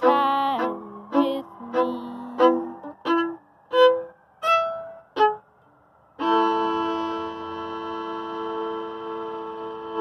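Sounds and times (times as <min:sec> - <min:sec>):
bowed violin notes: 0:00.0 - 0:10.0.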